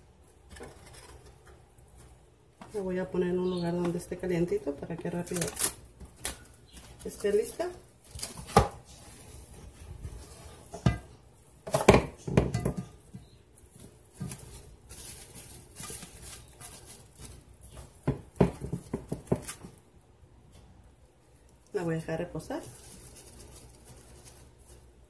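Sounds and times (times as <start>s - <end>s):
plastic wrap crinkling: 5.0s - 9.8s, 13.5s - 19.7s, 21.7s - 25.0s.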